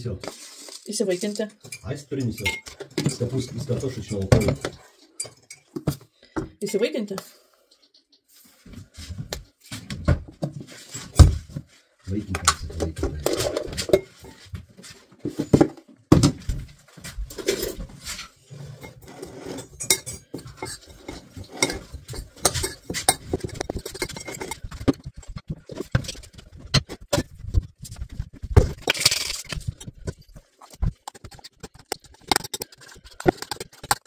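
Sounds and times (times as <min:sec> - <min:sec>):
spoon scraping ceramic bowl: 0:01.2 - 0:05.8, 0:18.6 - 0:26.1, 0:30.6 - 0:34.0
loose pieces rattling into bowl: 0:28.7 - 0:29.9.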